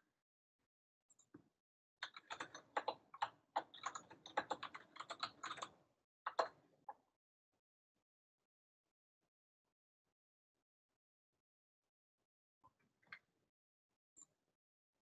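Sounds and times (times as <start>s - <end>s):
computer keyboard typing: 2.0s - 6.6s.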